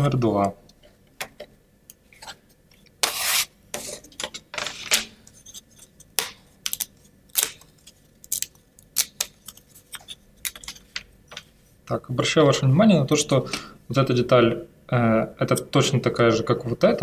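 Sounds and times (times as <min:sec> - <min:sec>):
plywood sheets scraping: 0:03.0 - 0:04.0.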